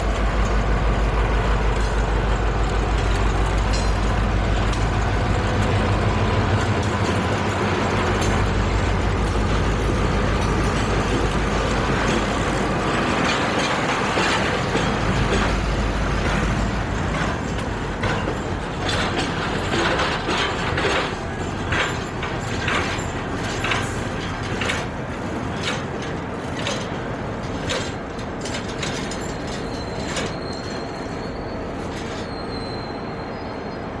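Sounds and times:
train wheels clicking over rail joints: 0.0s - 33.5s
deep locomotive engine rumble: 0.0s - 34.0s
high wheel squeal: 27.8s - 34.0s.

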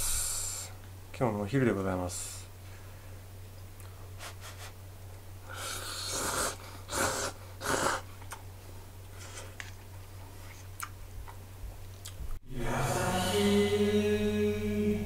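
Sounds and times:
person slurping noodles: 5.5s - 8.1s.

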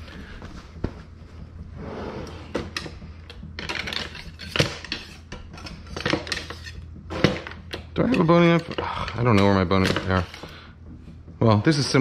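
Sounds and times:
knives and utensils clattering: 2.6s - 10.6s.

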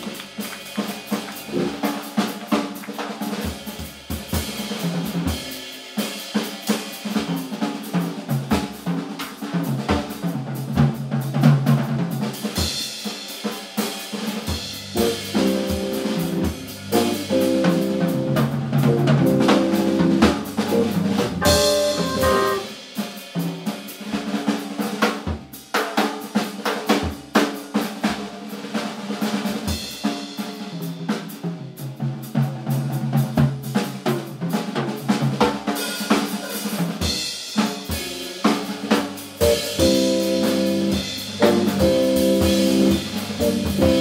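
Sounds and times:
drum kit: 0.0s - 44.0s
electric guitar: 15.0s - 22.7s
organ chords: 15.0s - 22.7s, 39.4s - 44.0s.

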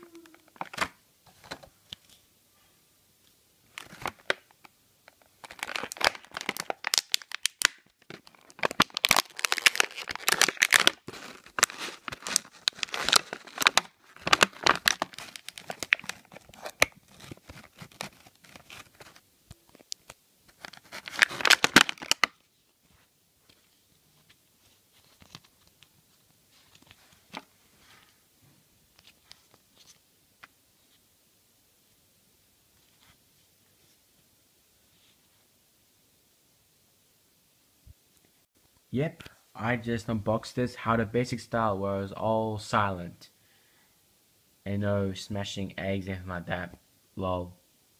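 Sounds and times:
plastic packaging crinkling and tearing: 3.7s - 4.5s, 5.1s - 22.4s
faint handling sounds: 8.0s - 31.2s, 32.7s - 35.6s.

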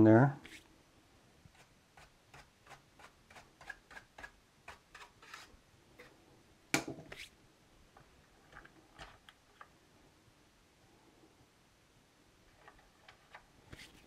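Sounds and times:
brush scraping circuit board: 0.4s - 0.7s, 1.5s - 6.1s.

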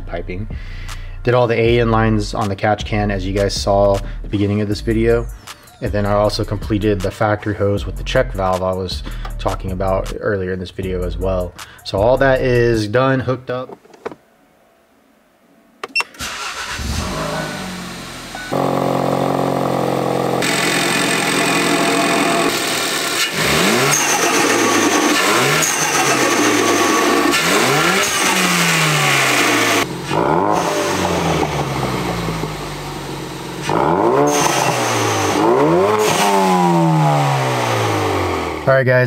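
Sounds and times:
car engine starting and idling: 15.8s - 38.7s
engine revving: 16.2s - 38.7s.

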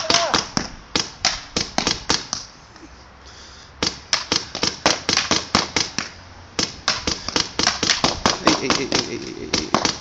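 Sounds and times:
rapid sharp pops: 3.8s - 10.0s.

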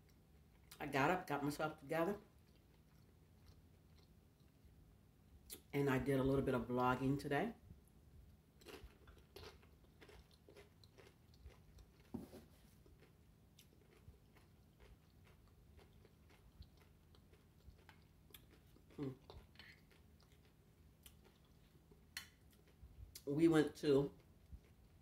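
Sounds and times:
chewing crunchy chips: 2.2s - 4.8s, 8.6s - 23.3s, 24.1s - 25.0s.

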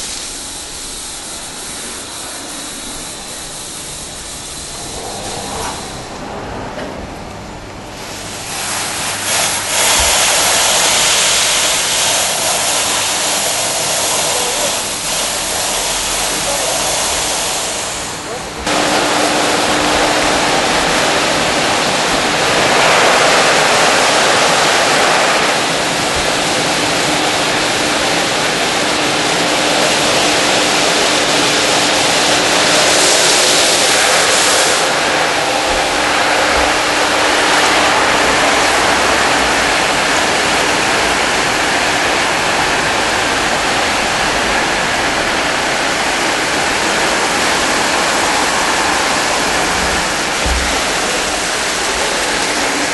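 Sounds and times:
water spray hissing: 0.0s - 6.2s, 8.1s - 52.9s.

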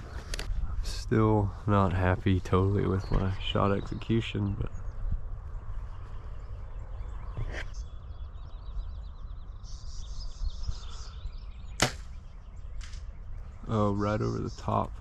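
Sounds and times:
bow string snap: 11.8s - 12.1s.

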